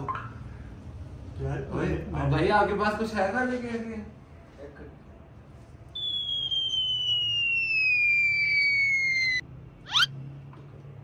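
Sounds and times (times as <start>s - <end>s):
falling slide whistle: 6.0s - 10.1s.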